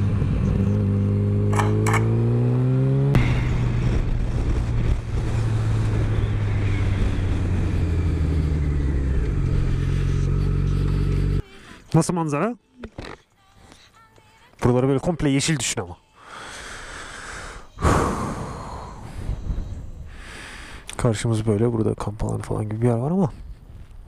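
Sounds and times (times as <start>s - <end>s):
motorcycle engine accelerating: 0.0s - 11.4s
wind noise: 3.2s - 9.8s, 17.9s - 20.6s.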